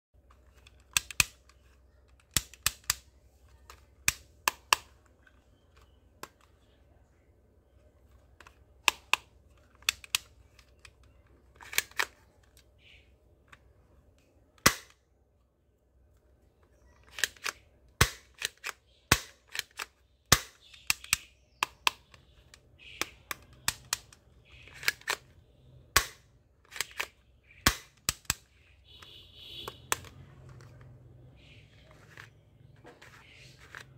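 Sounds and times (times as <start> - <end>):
toy pistol plastic clicks: 0.3 - 6.5, 8.4 - 12.9, 16.8 - 30.9.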